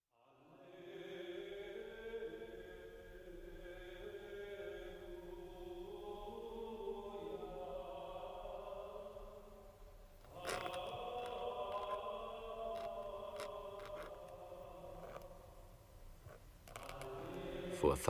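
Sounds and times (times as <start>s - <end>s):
voices in slow chant: 0.1s - 18.0s.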